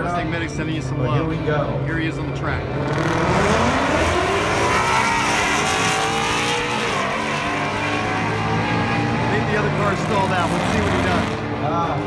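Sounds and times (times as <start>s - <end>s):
drag car engine accelerating: 2.2s - 11.7s.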